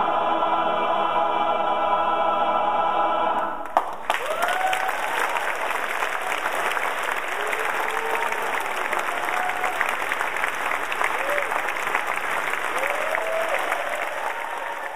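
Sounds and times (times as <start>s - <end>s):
choir singing: 0.0s - 3.7s
audience applause: 3.6s - 14.9s
crowd whooping: 4.1s - 14.9s.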